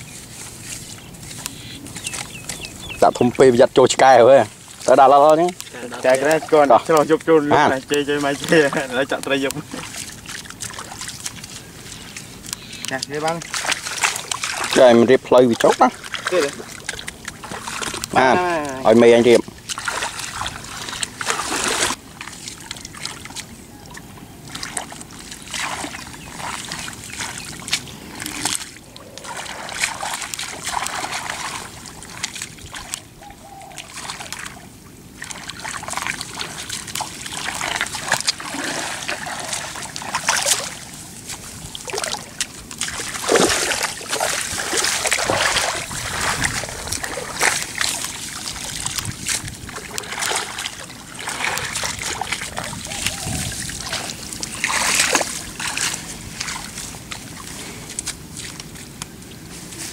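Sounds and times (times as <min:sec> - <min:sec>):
muddy water splashing: 0:00.0 - 0:59.9.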